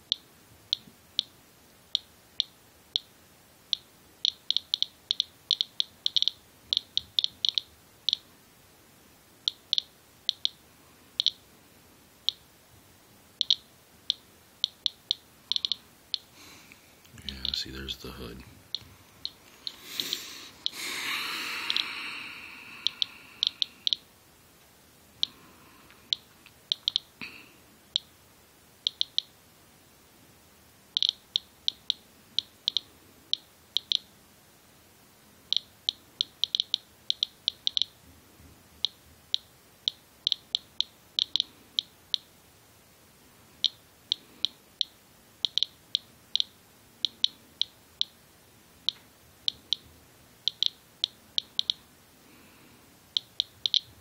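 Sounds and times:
geiger counter beeps: 0:03.7 - 0:08.3, 0:09.5 - 0:10.6, 0:11.2 - 0:11.4, 0:13.4 - 0:16.3, 0:17.2 - 0:19.4, 0:22.8 - 0:24.1, 0:26.1 - 0:27.1, 0:28.9 - 0:29.3, 0:31.0 - 0:34.1, 0:35.5 - 0:38.0, 0:38.8 - 0:42.3, 0:43.6 - 0:48.2, 0:50.5 - 0:51.8, 0:53.2 - 0:53.9.

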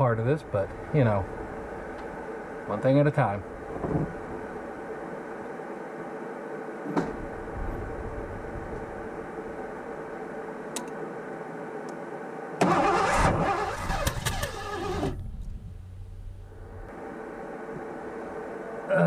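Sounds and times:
engine starter cranking: 0:12.6 - 0:15.2.

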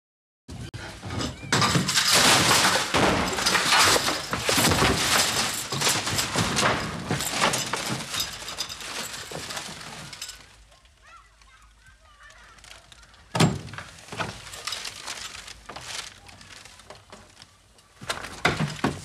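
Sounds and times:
furniture crashing and breaking: 0:00.8 - 0:10.7, 0:13.3 - 0:17.3, 0:18.0 - 0:19.0.

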